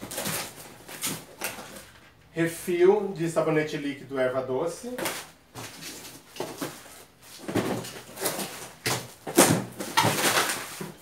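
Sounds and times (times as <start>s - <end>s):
cardboard bumps: 5.0s - 11.0s.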